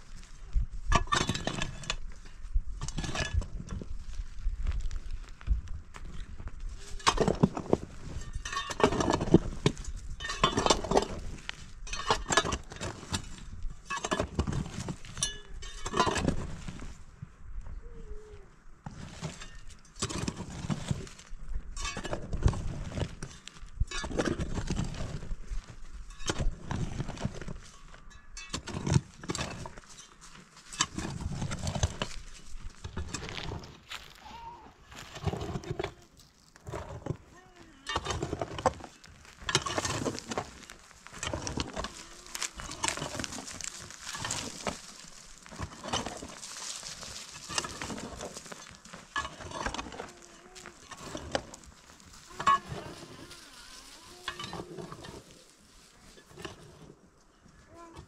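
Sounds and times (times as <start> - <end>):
hoe chopping and scraping soil: 0.0 - 17.1, 18.8 - 34.2, 34.8 - 57.1.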